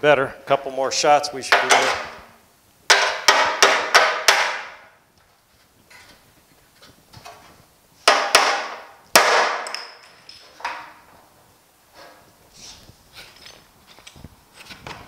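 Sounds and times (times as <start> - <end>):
hammer striking sheet metal: 2.9 - 4.9, 8.1 - 9.9.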